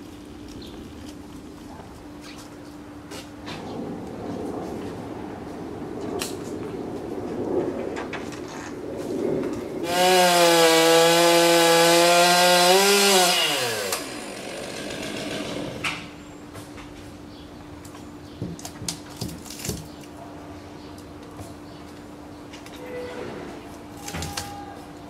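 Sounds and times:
chainsaw revving: 9.8 - 15.9.

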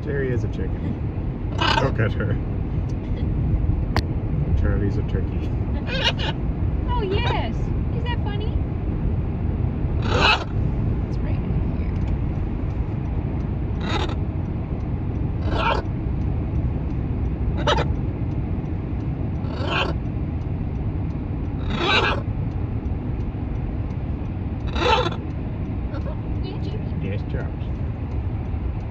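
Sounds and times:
road noise inside car: 0.0 - 28.9
macaws calling: 1.5 - 2.0, 5.8 - 6.4, 10.0 - 10.6, 13.8 - 14.2, 15.4 - 15.9, 17.6 - 18.0, 19.4 - 20.0, 21.6 - 22.3, 24.7 - 25.3.

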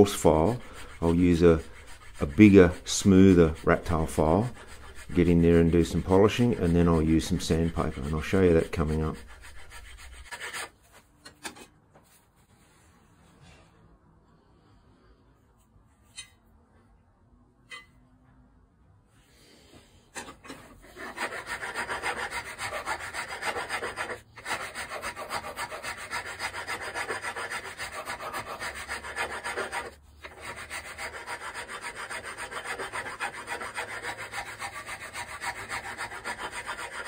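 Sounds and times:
abrasive tool rubbing cast iron: 0.0 - 10.7, 20.2 - 37.0.

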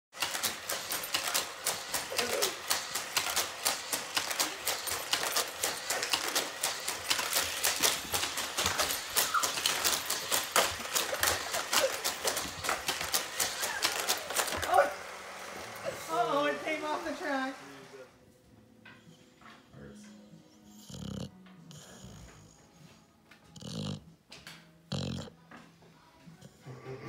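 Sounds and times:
toy cars clattering on plastic track: 0.2 - 14.9.

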